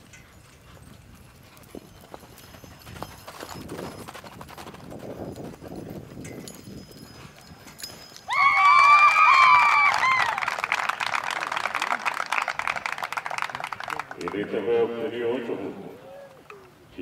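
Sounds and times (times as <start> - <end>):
horse hooves clip-clopping: 0.0 - 15.0.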